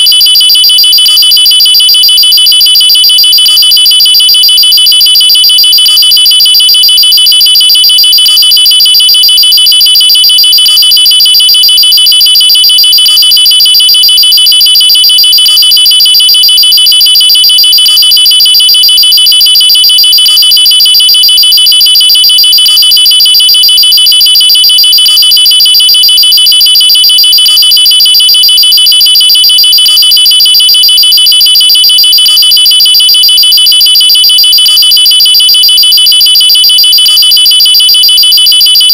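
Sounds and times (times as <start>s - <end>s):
pulsing electronic alarm tone: 0.0s - 38.9s.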